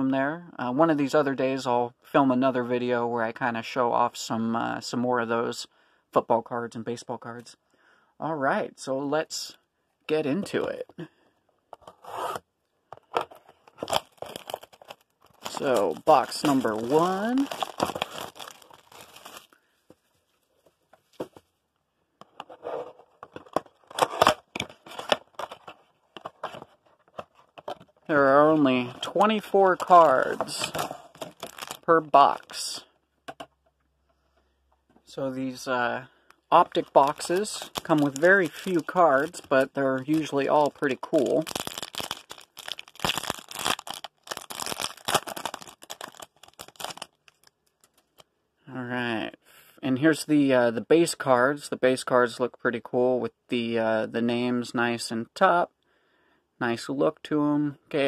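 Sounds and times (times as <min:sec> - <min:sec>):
foil wrapper tearing and crinkling: 0:13.8 - 0:19.6, 0:30.6 - 0:31.9, 0:36.8 - 0:48.2.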